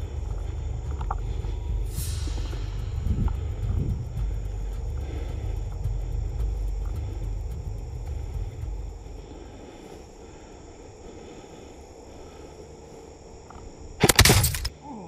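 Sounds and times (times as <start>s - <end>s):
stems crackling on microphone: 0.0s - 10.2s
camera handling rumble: 14.0s - 14.7s.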